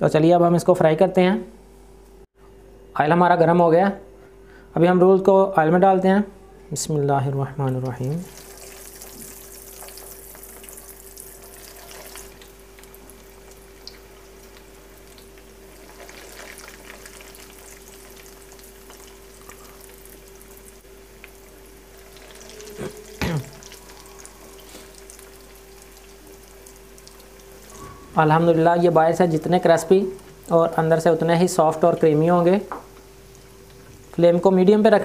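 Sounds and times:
steady hum: 0.0 - 35.0
food frying in hot oil: 8.1 - 27.8.

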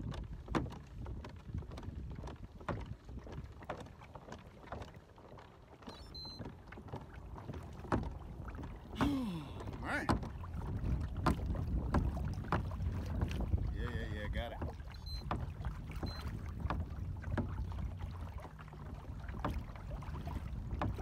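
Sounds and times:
wind rumble on microphone: 0.0 - 3.7, 9.6 - 21.0
kayak clicks and knocks: 0.0 - 21.0.

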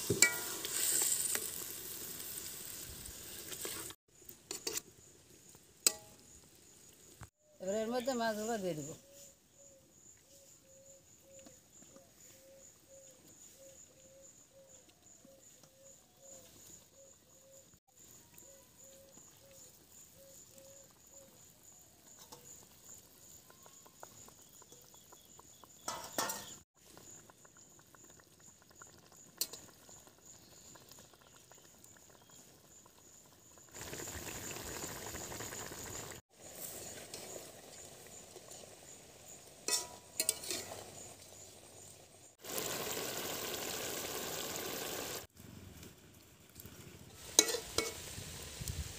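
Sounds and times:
curry bubbling: 22.5 - 48.2.

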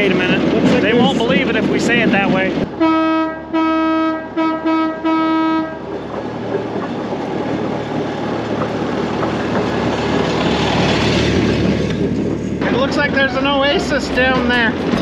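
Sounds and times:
steel wheels rolling on rails: 0.0 - 2.8, 5.3 - 15.0
rail speeder horn toots: 2.8 - 5.8.

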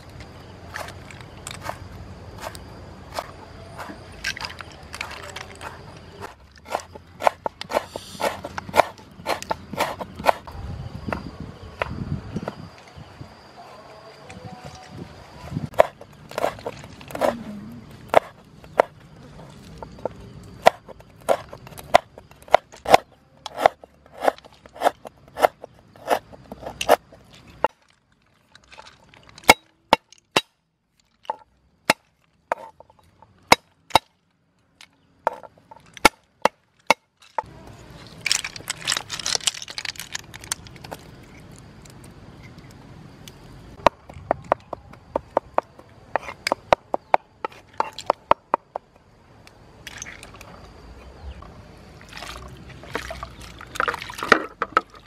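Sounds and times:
cleaver chopping on wooden board: 6.7 - 10.4, 18.1 - 18.9, 20.6 - 27.0.

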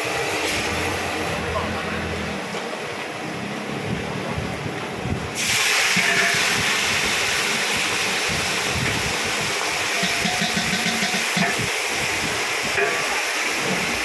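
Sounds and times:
gas burner rumble: 0.0 - 14.0
greens sizzling in a wok: 5.4 - 14.0
metal lid clinking: 10.0 - 11.6.

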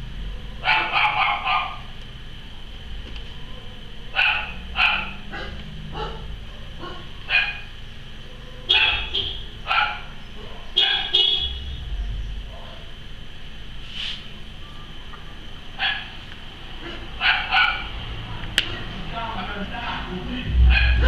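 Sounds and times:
dog barking: 0.5 - 1.9, 4.1 - 7.7, 8.3 - 11.5, 15.8 - 16.2, 16.8 - 17.9, 20.6 - 21.0.

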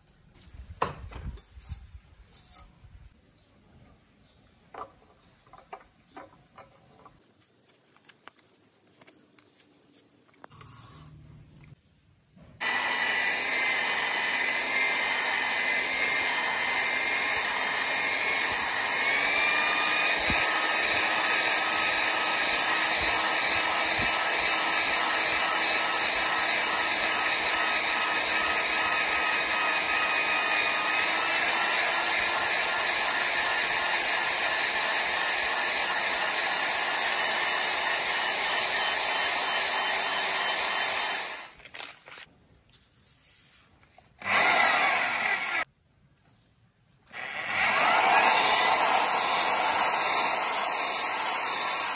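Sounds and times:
electric drill running: 12.6 - 42.3, 44.2 - 45.7, 47.1 - 51.9.

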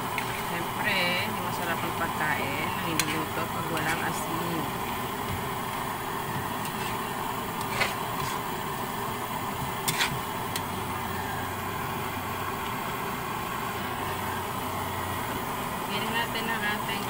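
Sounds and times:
spatula stirring stew in a wok: 0.0 - 11.0
steady noisy hum: 0.0 - 17.0.

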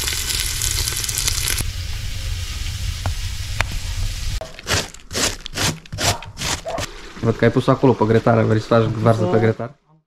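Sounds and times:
meat sizzling in a pot: 0.0 - 5.0
cabbage scraping on slicer: 4.6 - 6.9.

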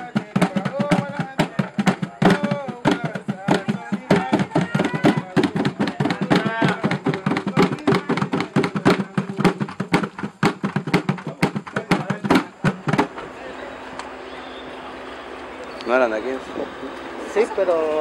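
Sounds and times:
plastic bucket drumming: 0.0 - 13.2
voices: 0.0 - 18.0.

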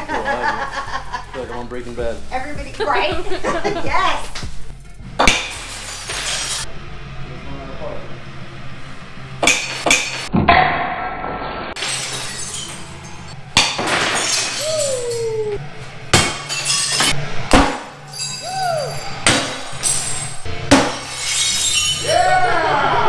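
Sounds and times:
background music: 0.0 - 10.4, 11.8 - 23.0
glass smashing: 5.2 - 6.6, 11.8 - 15.5, 16.1 - 22.2.

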